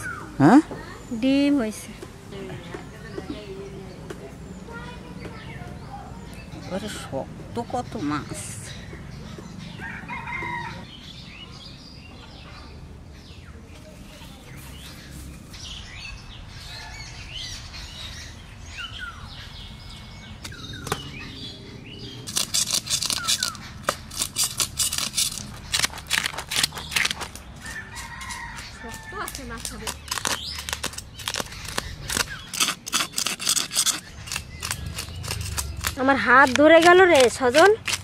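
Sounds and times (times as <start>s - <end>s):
small birds chirping: 0.0s - 38.0s
knife scraping fish scales: 22.3s - 28.7s, 29.6s - 38.0s.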